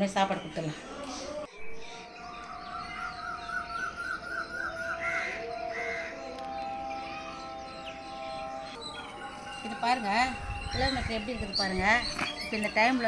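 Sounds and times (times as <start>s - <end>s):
birds calling: 0.0s - 13.0s
soft music with held notes: 1.0s - 10.8s
crow cawing: 2.9s - 6.2s.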